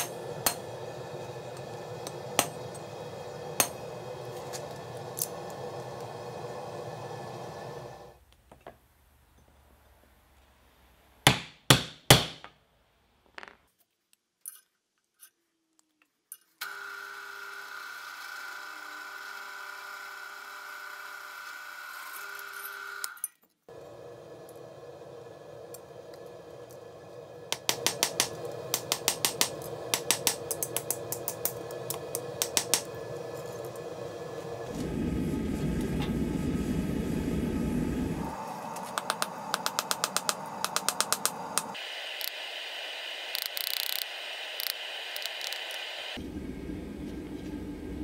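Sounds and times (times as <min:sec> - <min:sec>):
steady hum: 0:00.0 - 0:08.2, 0:23.7 - 0:48.0.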